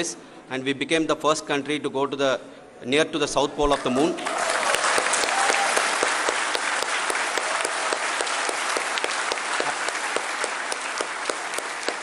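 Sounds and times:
crowd applauding: 3.7s - 12.0s.

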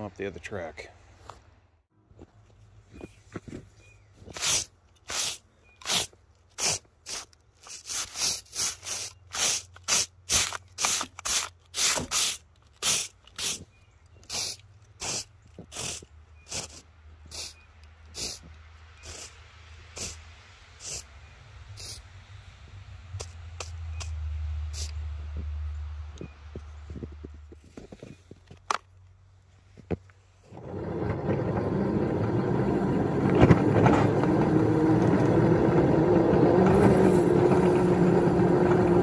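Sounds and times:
broom sweeping snow: 3.1s - 13.7s, 14.3s - 22.5s.

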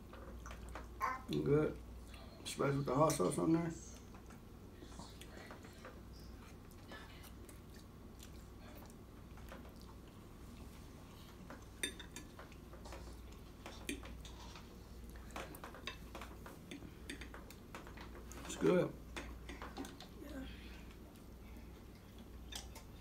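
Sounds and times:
low room hum: 0.0s - 23.0s.

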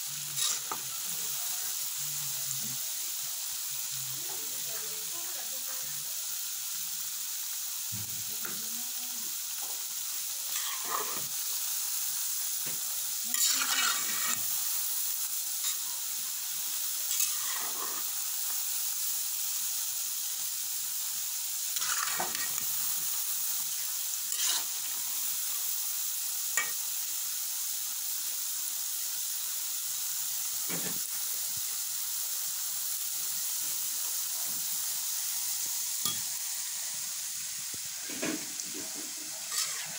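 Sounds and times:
dough sizzling in hot oil: 0.0s - 39.9s
metal spatula scraping pot: 0.4s - 0.8s, 10.5s - 11.3s, 13.4s - 14.5s, 17.1s - 18.0s, 21.8s - 22.6s, 24.3s - 24.7s, 38.1s - 39.9s.

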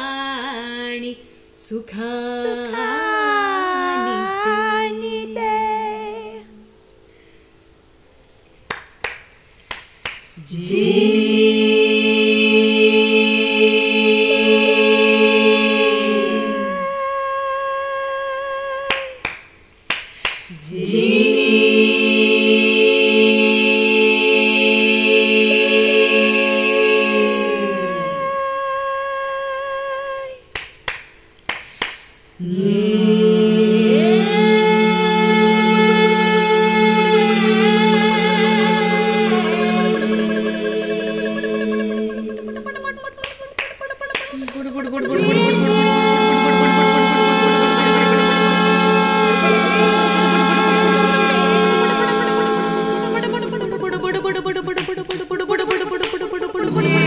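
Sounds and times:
woman singing: 0.0s - 6.6s, 16.1s - 19.2s, 27.4s - 30.4s, 33.8s - 46.9s, 53.1s - 57.0s
a cappella choir chord: 0.0s - 6.8s, 10.4s - 19.2s, 20.5s - 30.4s, 32.4s - 43.0s, 44.2s - 57.0s
finger snaps: 8.2s - 10.4s, 18.9s - 20.6s, 30.5s - 32.2s.

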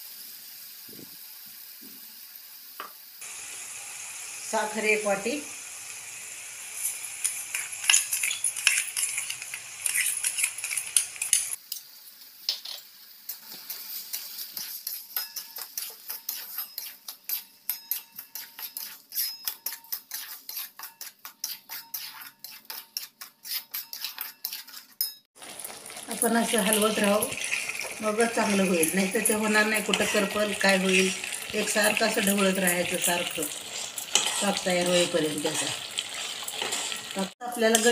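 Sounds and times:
hiss of hot paste: 0.0s - 4.6s
spatula scraping a metal pan: 6.8s - 11.6s, 13.4s - 25.3s, 27.2s - 37.9s.

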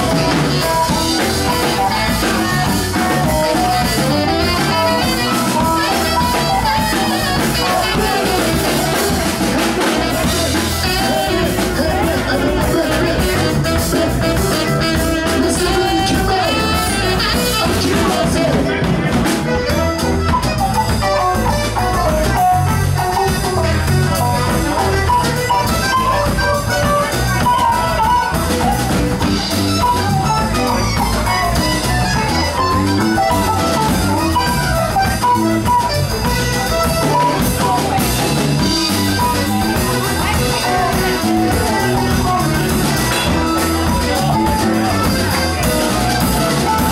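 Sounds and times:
live latin rock band: 0.0s - 46.9s
saxophone: 0.0s - 46.9s.

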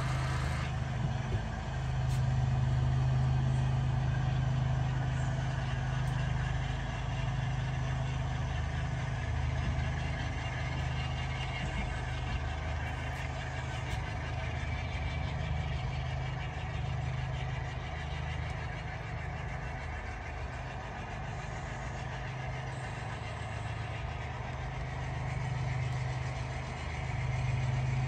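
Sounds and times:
model train rolling: 0.0s - 1.8s, 4.1s - 28.0s
model diesel locomotive engine: 0.0s - 28.0s.

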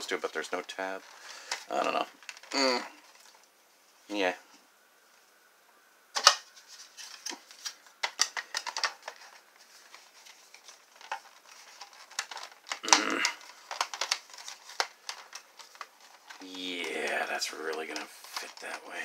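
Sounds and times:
plastic clatter: 6.2s - 18.8s.

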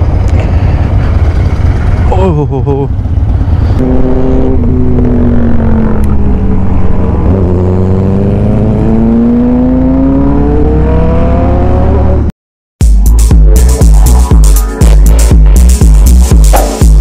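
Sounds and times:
low wind rumble: 0.0s - 9.0s
motorcycle engine accelerating: 0.0s - 12.3s.

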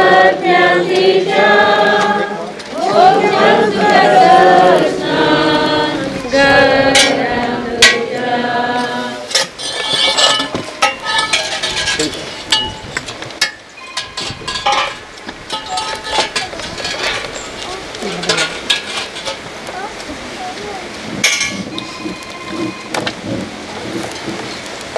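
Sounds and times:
group singing a hymn: 0.0s - 10.8s
digging tool clinking in earth: 9.3s - 17.6s.

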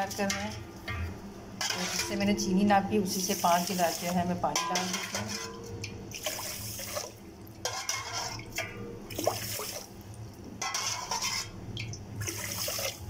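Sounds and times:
water pouring into saucepan: 6.1s - 10.2s, 10.8s - 13.0s.

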